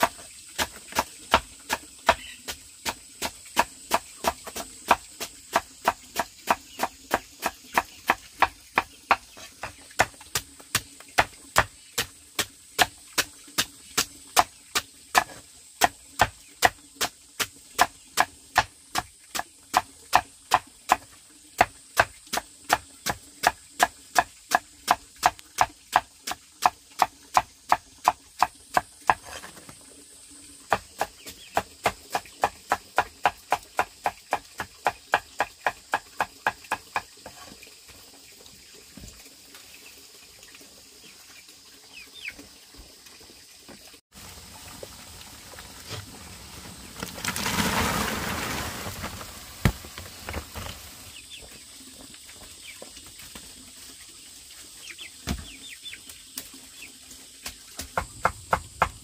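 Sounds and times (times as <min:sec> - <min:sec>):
rapid chopping strokes: 0:00.0 - 0:29.5.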